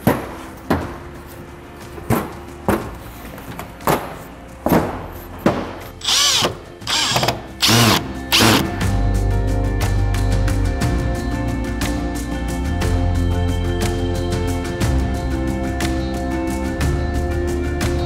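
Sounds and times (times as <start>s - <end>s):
cordless drill motor whining: 6.0s - 8.8s.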